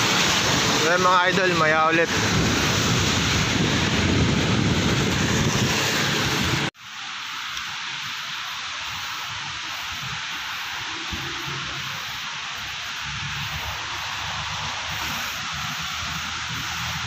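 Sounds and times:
wind noise on microphone: 2.0s - 6.7s, 8.6s - 17.0s
thin steady hiss: 6.7s - 17.0s.

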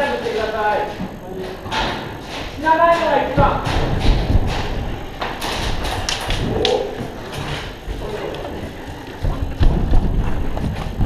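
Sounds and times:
sharp clicks and knocks: 0.2s - 11.0s
heavy low thumps: 1.0s - 11.0s.

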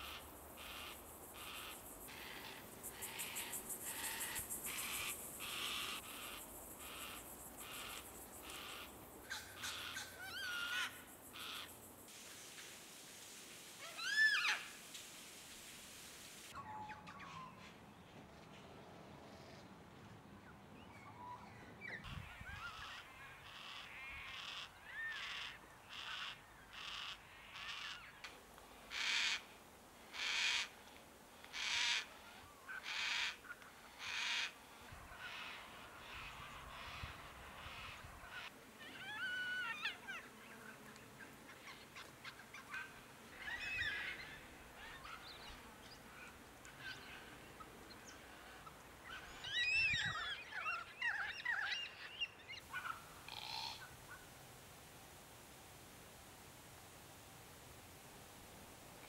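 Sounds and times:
cockatoos wavering calls: 0.0s - 11.7s, 13.8s - 14.8s, 34.0s - 40.3s, 41.6s - 47.5s.

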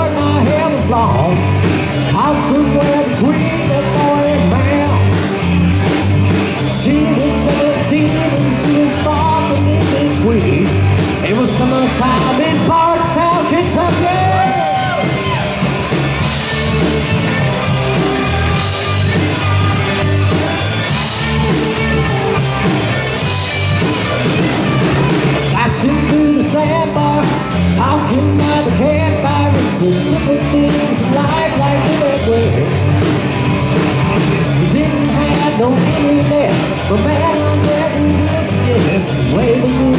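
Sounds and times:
person singing: 0.0s - 5.6s, 6.4s - 15.8s, 25.4s - 33.0s, 34.4s - 39.9s
bass: 0.0s - 39.9s
drums: 0.0s - 39.9s
electric guitar: 0.0s - 39.9s.

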